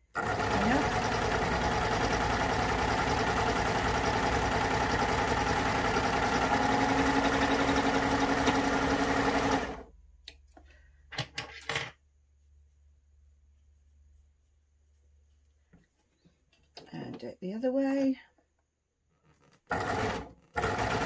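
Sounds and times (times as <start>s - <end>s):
sewing machine running: 0.0s - 9.9s, 19.7s - 21.0s.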